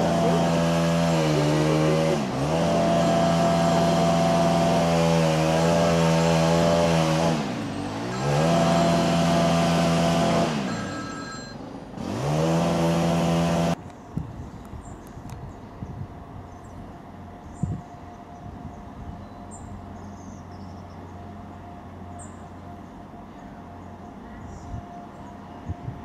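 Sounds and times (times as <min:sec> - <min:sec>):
train diesel engine running hard: 0:00.0 - 0:13.8, 0:16.9 - 0:26.0.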